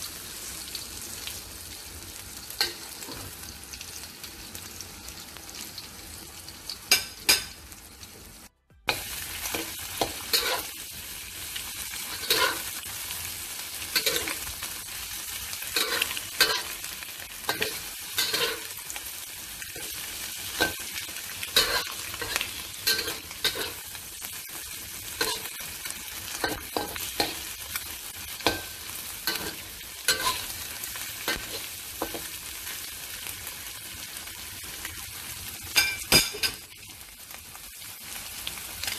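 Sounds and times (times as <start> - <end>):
food sizzling in oil in a wok: 0.0 - 38.9
spatula stirring and scraping pan: 12.0 - 12.8, 13.9 - 14.6, 15.7 - 16.8, 17.4 - 18.8, 19.7 - 24.0, 28.3 - 32.4.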